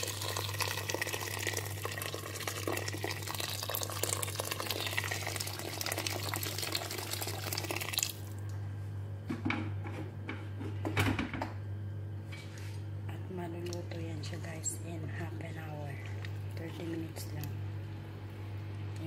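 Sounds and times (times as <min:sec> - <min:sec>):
water pouring into metal pot: 0:00.0 - 0:08.4.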